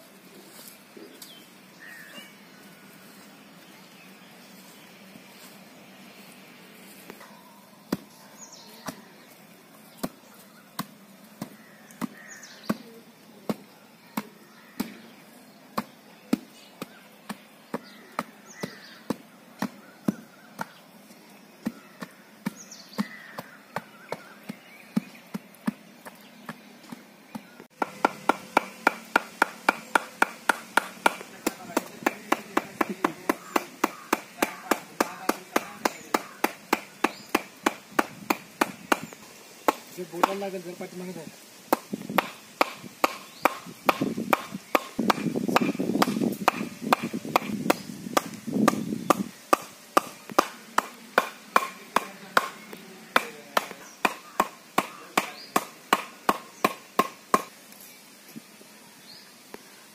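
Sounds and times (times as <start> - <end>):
knocking on soil by hand: 9.9 - 10.2, 10.8 - 15.1, 15.7 - 20.8, 21.6 - 40.5, 41.7 - 57.6
hammer driving wooden post: 27.8 - 39.1.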